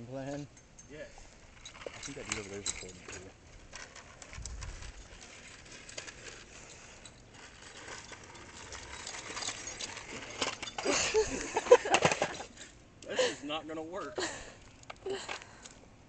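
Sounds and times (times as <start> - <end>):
wheels clattering over concrete: 1.2 - 12.8.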